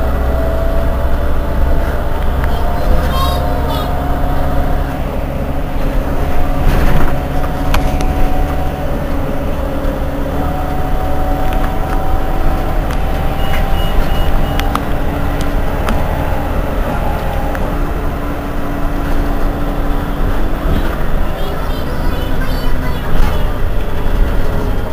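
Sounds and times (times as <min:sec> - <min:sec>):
bus diesel engine drone: 0:00.0 - 0:24.9
short high beeps: 0:13.4 - 0:14.7.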